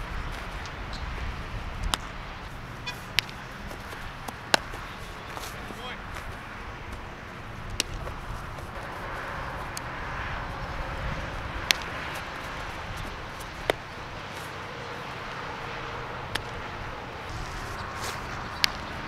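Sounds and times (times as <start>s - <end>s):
steady outdoor hum: 0.0s - 19.0s
baseball popping into leather glove: 1.8s - 2.1s, 2.9s - 6.3s, 7.6s - 8.8s, 11.6s - 13.9s.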